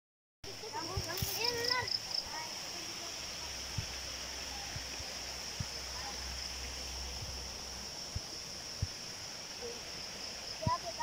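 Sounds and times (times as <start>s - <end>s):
high hiss: 0.5s - 11.0s
footsteps on forest path: 0.8s - 2.0s.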